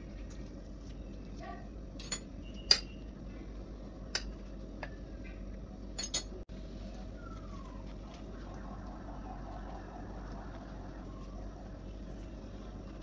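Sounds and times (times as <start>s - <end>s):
low hum: 0.0s - 13.0s
tableware clinking: 2.0s - 2.9s, 6.0s - 6.4s.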